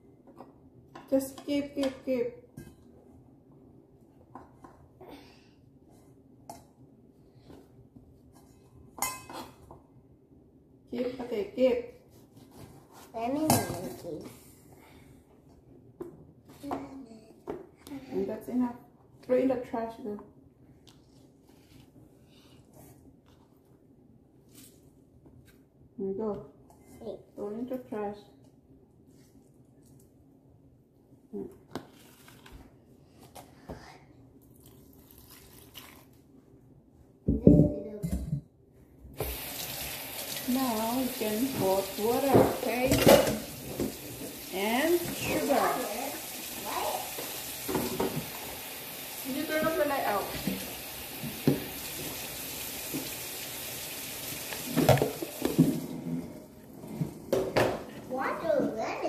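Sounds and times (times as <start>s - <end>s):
water pouring into a container: 34.6s - 36.1s.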